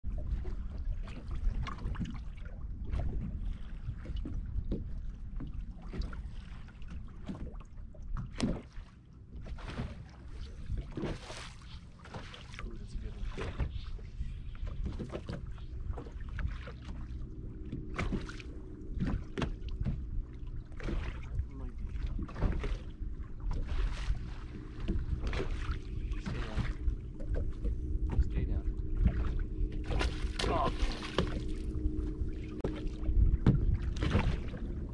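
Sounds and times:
waves lapping against boat hull: 0.0s - 34.9s
wind buffeting microphone: 12.7s - 16.5s, 18.9s - 34.9s.

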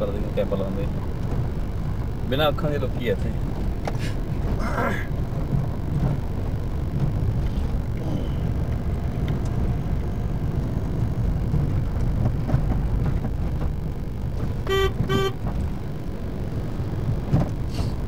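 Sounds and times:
car engine and road rumble: 0.0s - 18.0s
car horn toots: 14.6s - 15.6s.

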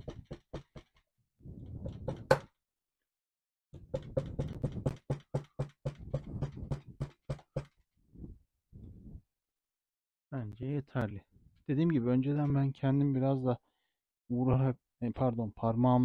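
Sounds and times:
hammer tapping on book spine: 4.0s - 7.7s.

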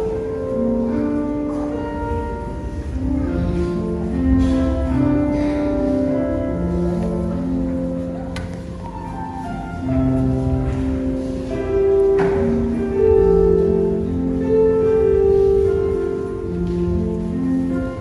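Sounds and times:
slow instrumental music: 0.0s - 18.0s.

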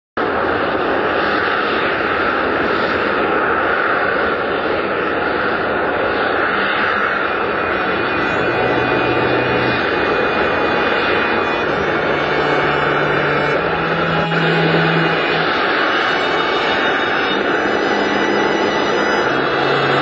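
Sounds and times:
jet engine roaring steadily: 0.2s - 20.0s.

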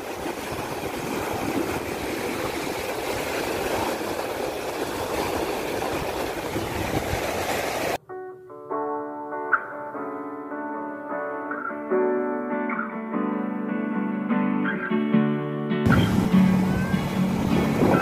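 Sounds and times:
small waves washing up shore: 0.0s - 8.0s.

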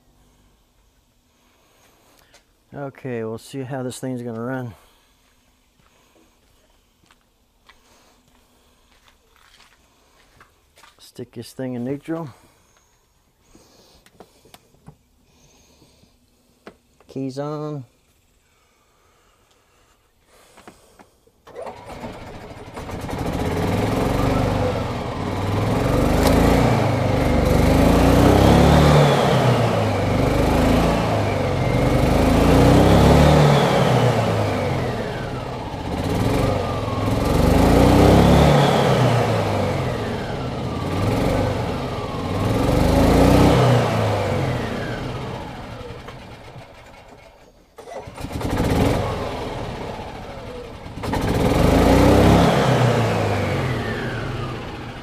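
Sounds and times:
engine whine: 21.4s - 55.0s
golf cart engine revving: 21.4s - 55.0s.

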